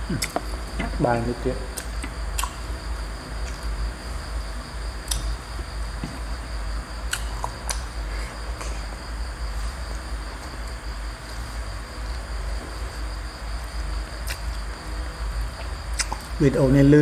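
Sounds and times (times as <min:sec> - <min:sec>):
crickets chirring: 0:00.0 - 0:17.0
low rumbling hum: 0:00.0 - 0:17.0.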